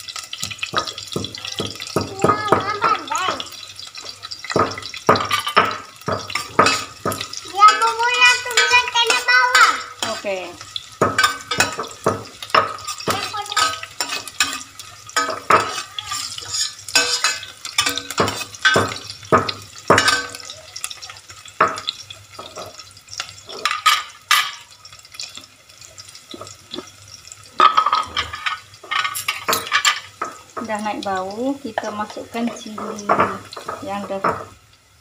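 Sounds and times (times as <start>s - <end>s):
shallots sizzling in oil: 0.0s - 35.0s
metal ladle scraping pot: 4.5s - 10.4s, 11.1s - 19.1s, 27.6s - 30.3s.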